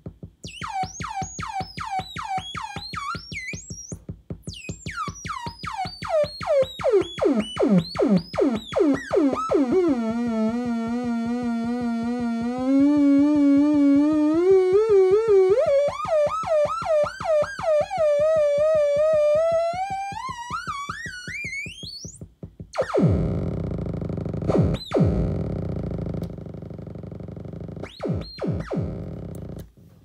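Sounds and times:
buzzy synthesizer drone: 0.5s - 29.6s
harsh noisy synthesizer blast: 4.9s - 21.4s, 22.8s - 29.6s.

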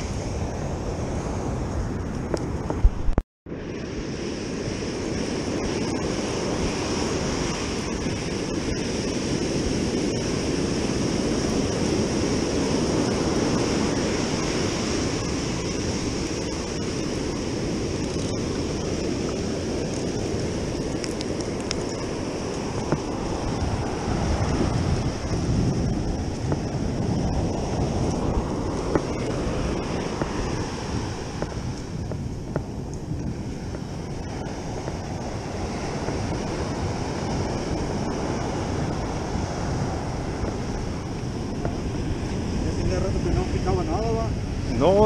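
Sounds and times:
ocean surf breaking on beach: 0.0s - 45.0s
wind on microphone: 0.0s - 45.0s.

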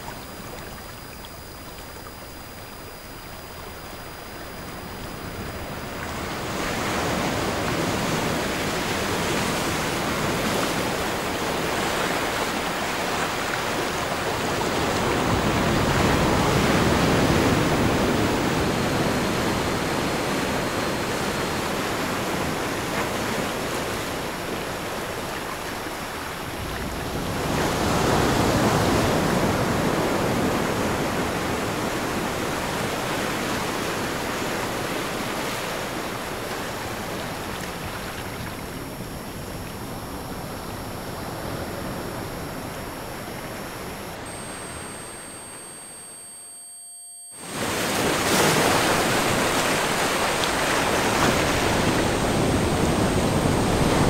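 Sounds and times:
faint high steady tones: 0.0s - 22.5s, 37.1s - 54.0s
ocean waves washing in: 47.4s - 54.0s.

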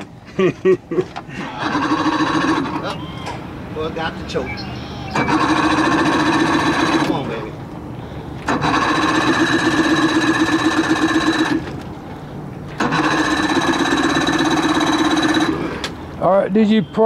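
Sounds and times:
outboard engine cranking: 1.4s - 3.0s, 5.0s - 7.6s, 8.3s - 11.9s, 12.7s - 16.1s.

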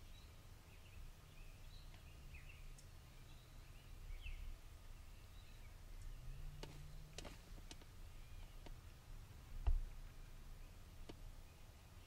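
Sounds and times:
bird chirps: 0.0s - 7.2s, 8.0s - 8.7s
low steady rumble: 0.0s - 12.0s.

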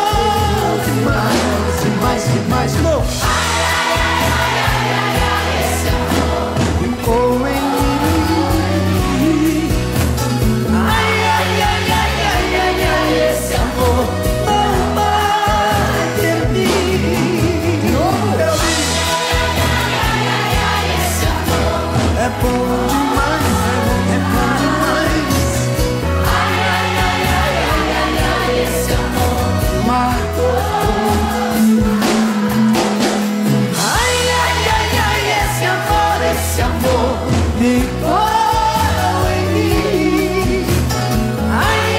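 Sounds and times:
accordion: 0.0s - 41.9s
acoustic guitars: 0.0s - 41.9s
drums: 0.0s - 41.9s
electric bass: 0.0s - 41.9s
voices singing: 0.0s - 41.9s.

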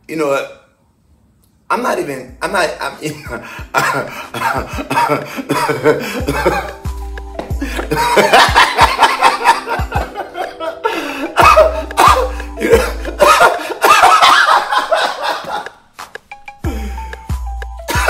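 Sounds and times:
background music with low bass: 1.7s - 18.0s
man laughing hard: 3.3s - 6.8s, 7.4s - 15.8s.

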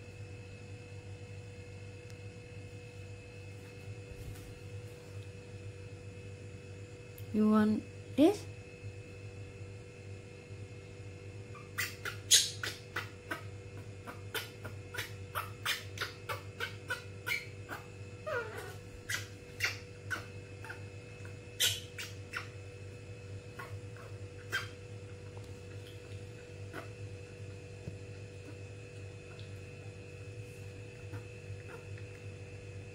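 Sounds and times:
monkey squeak: 11.6s - 12.8s, 16.9s - 17.5s, 18.3s - 20.8s, 21.6s - 22.5s.

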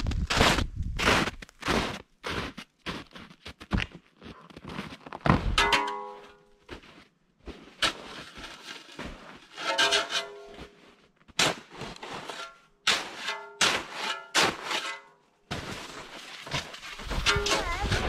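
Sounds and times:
footsteps crunching through snow: 0.0s - 5.6s, 6.6s - 12.4s, 15.5s - 18.0s.

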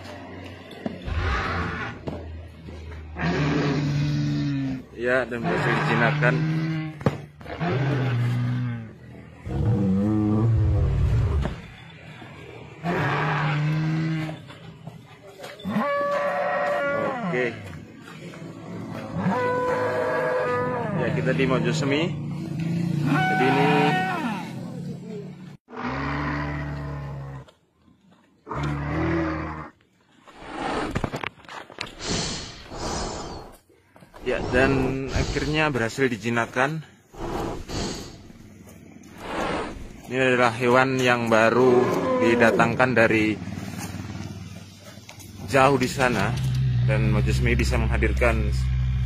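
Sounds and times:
rough noisy growl: 0.0s - 14.7s, 37.1s - 49.0s
dinosaur roars: 1.0s - 11.6s, 12.8s - 14.5s, 18.6s - 21.8s, 25.7s - 27.5s, 28.4s - 29.8s, 41.4s - 43.0s, 46.0s - 49.0s.

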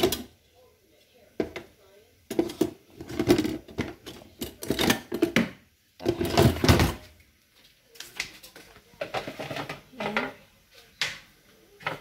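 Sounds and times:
kitchen utensils clinking: 2.3s - 7.0s.

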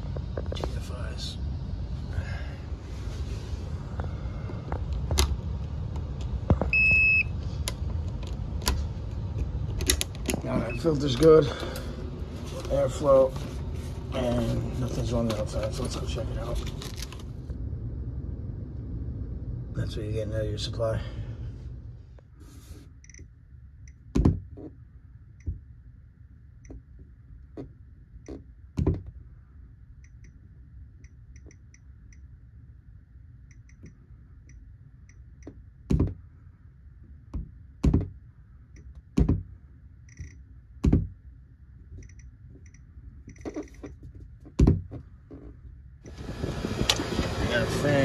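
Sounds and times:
low steady rumble: 0.0s - 48.0s
dull thumps: 24.1s - 24.8s, 28.3s - 29.2s, 35.9s - 36.2s, 37.3s - 38.2s, 39.1s - 39.5s, 40.8s - 41.2s, 44.1s - 45.6s.

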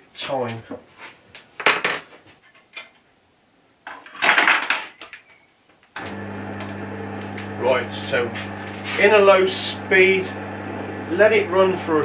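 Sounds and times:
lathe motor humming: 6.0s - 12.0s
metal scrape: 8.4s - 9.2s.

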